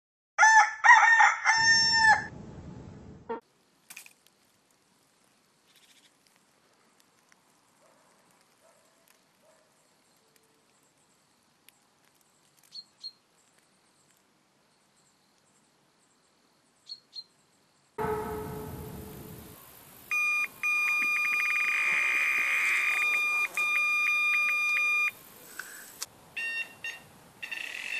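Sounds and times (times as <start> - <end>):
rooster crowing: 0.4 - 2.3
faint bird chirps: 13.8 - 17.9
rough low noise: 18.0 - 20.1.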